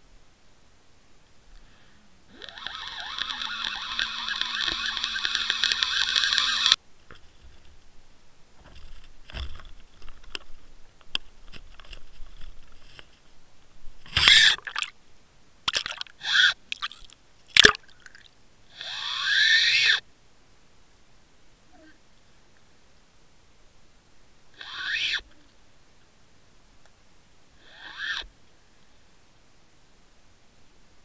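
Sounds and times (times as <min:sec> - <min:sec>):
low wavering hum: 0:01.6 - 0:13.2.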